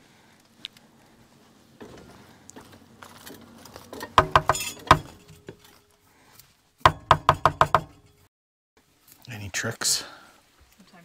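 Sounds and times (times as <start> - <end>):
sharp knocks on a can: 6.9 - 8.0.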